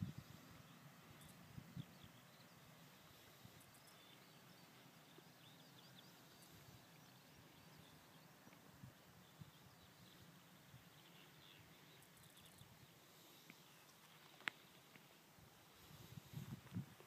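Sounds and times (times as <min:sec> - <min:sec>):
birds chirping: 0:00.0 - 0:16.2.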